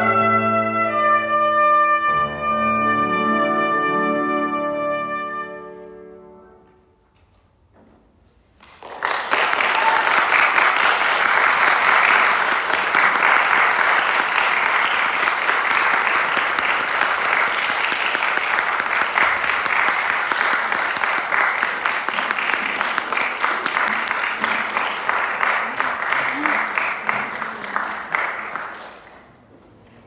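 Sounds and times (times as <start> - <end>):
audience applauding: 8.6 - 29.5.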